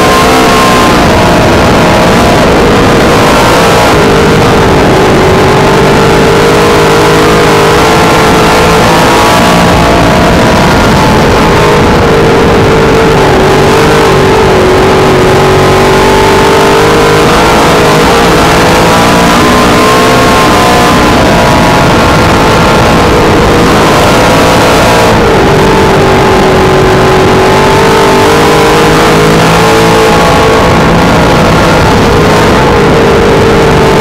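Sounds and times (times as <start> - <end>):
race car engine running hard: 0.0 - 34.0.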